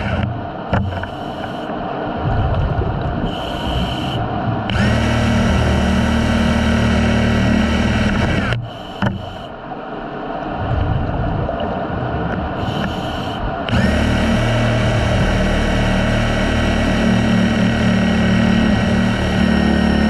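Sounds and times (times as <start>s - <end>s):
underwater power tool motor: 0.0s - 1.7s, 3.2s - 9.6s, 12.6s - 20.0s.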